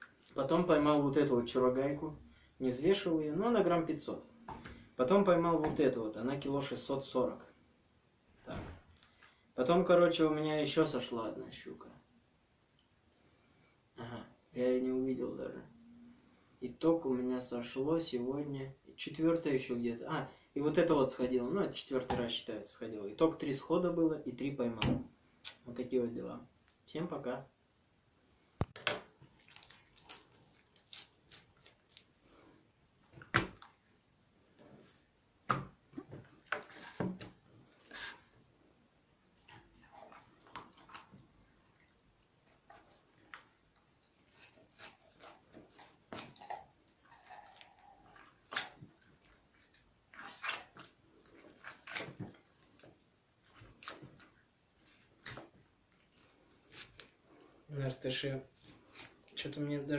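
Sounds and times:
knife scraping fish scales: 0:36.5 - 0:38.3, 0:44.2 - 0:48.9.

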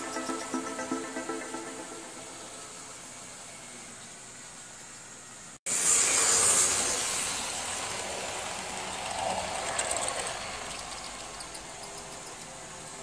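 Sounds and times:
model train wheels rattling on track: 0:05.8 - 0:13.0.

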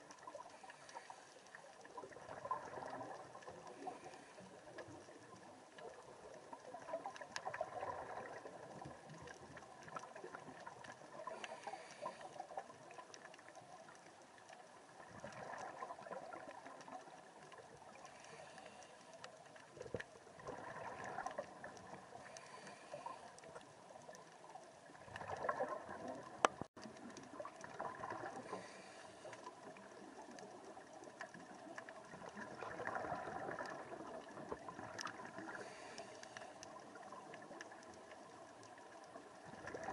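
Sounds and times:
underwater exhalation bubbles: 0:20.4 - 0:21.7, 0:25.0 - 0:26.6, 0:27.4 - 0:28.5, 0:32.1 - 0:35.6, 0:39.4 - 0:39.9.

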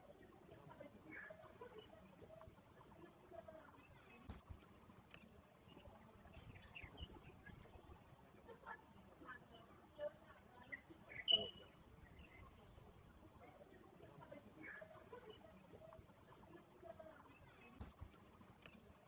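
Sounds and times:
faint click: 0:04.2 - 0:05.4, 0:17.5 - 0:18.9
faint high-pitched tone: 0:09.5 - 0:12.4.

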